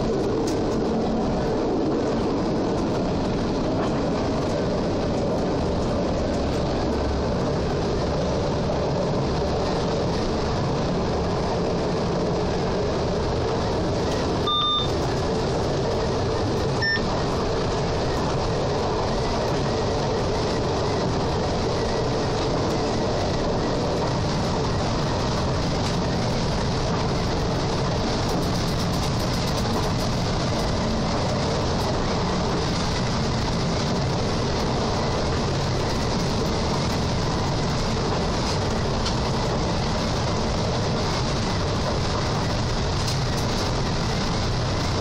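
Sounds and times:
railcar rumbling along track: 0:00.0 - 0:45.0
short electronic beeps: 0:14.4 - 0:15.0, 0:16.8 - 0:17.1.

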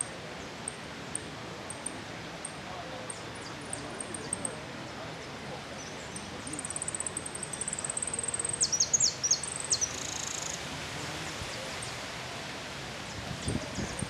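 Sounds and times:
outdoor hiss: 0:05.0 - 0:14.0
finch singing: 0:05.8 - 0:10.6.

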